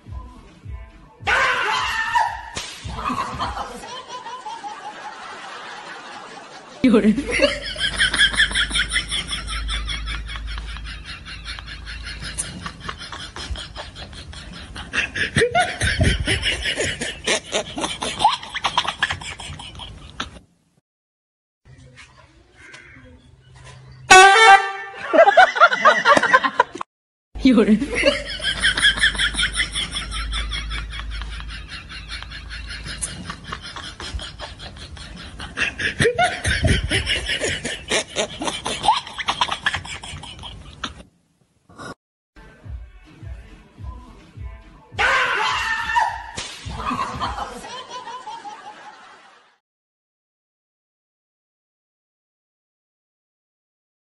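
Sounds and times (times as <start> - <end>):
people laughing hard: 1.3 - 20.4, 25.0 - 26.9, 27.7 - 41.0, 45.1 - 49.6.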